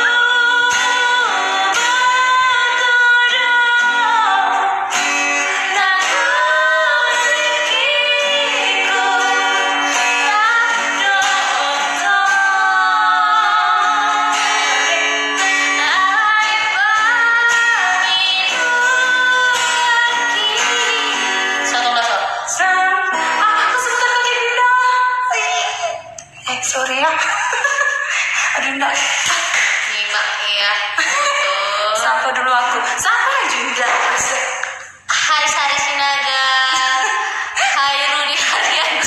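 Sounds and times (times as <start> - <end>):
strummed acoustic guitar: 0.0 - 24.5
woman singing slow song: 0.0 - 27.2, 28.7 - 39.0.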